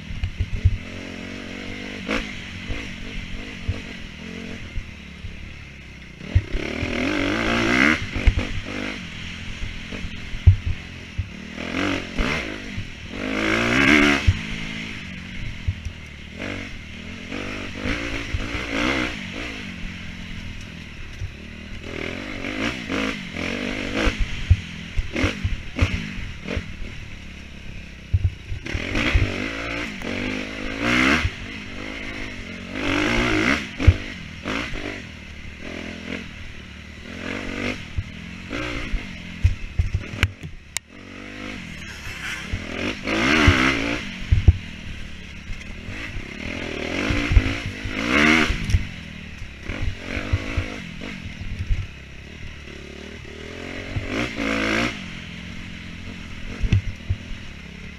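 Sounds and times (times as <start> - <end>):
dirt bike engine revving: 0.0 - 57.9.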